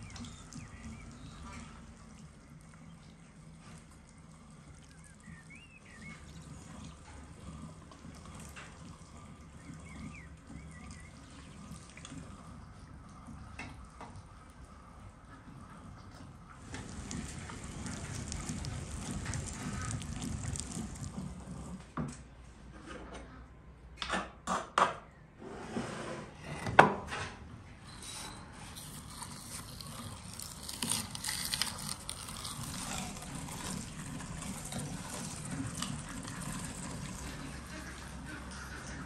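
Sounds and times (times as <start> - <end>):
hand-cranked meat grinder mincing: 16.7 - 21.7, 27.9 - 39.0.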